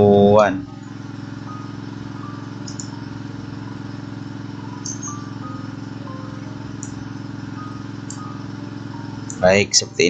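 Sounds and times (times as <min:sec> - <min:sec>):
low buzzing hum: 0:00.0 - 0:10.0
mouse click: 0:02.6 - 0:03.0, 0:04.8 - 0:05.1, 0:06.8 - 0:07.0.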